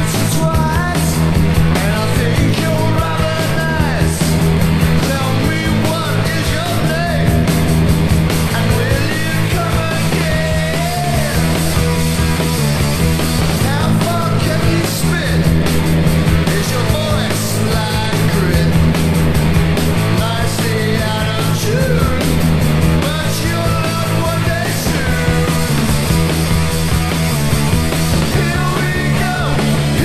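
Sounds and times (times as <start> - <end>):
punk rock song: 0.0 - 30.0.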